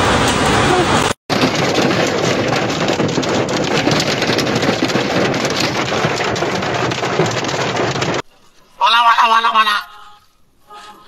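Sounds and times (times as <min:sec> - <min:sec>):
hail pelting car roof: 0:01.3 - 0:08.2.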